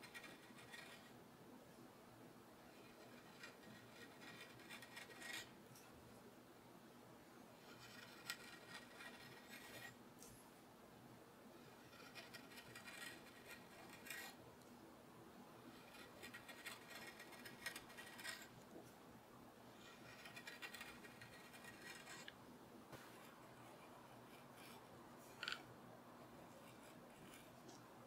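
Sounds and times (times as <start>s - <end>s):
knife scraping wood: 2.9s - 5.5s, 7.6s - 10.0s, 11.7s - 14.4s, 15.7s - 18.6s, 19.8s - 22.4s.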